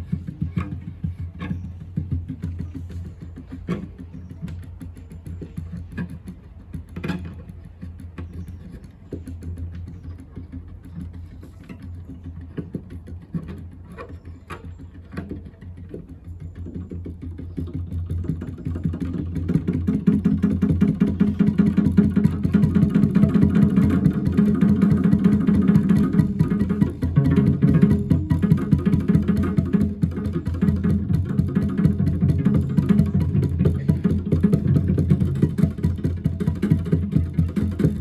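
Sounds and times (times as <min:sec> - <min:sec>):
sharp knocks and taps on cello: 0:00.0 - 0:17.6.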